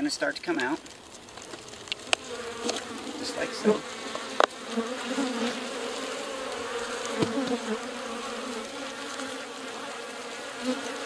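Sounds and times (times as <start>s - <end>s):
sharp clicks: 0.2s - 3.0s
honeybees buzzing: 0.2s - 11.0s.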